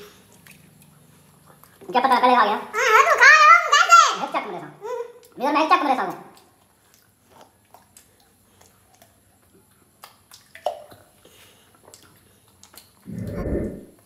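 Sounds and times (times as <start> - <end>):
short low sound: 13.1 - 14.0.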